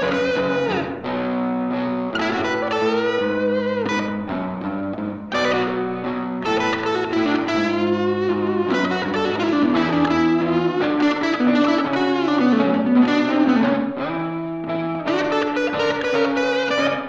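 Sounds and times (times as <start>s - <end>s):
electric guitar playing blues: 0.0s - 17.0s
slide guitar lead: 0.0s - 17.0s.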